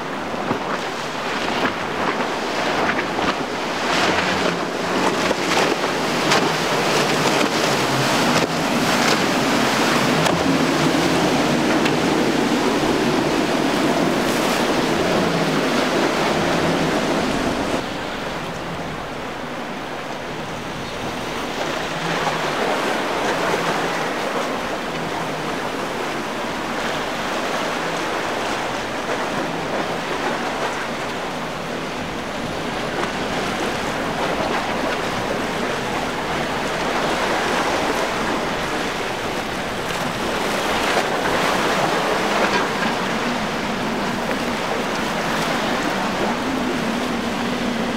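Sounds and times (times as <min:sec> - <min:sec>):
boat motor running: 0:00.0 - 0:47.9
seawater rushing and splashing: 0:00.0 - 0:47.9
wind on microphone: 0:00.0 - 0:47.9.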